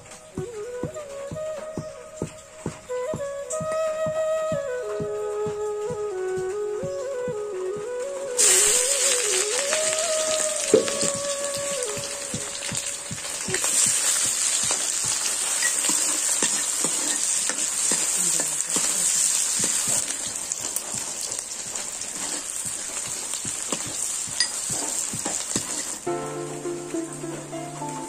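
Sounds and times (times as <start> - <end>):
onions sizzling in hot oil: 8.4 - 28.0.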